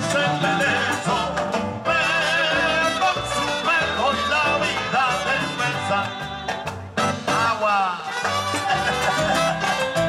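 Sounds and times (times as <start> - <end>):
people singing: 0.0 - 6.7
live band playing: 0.0 - 10.0.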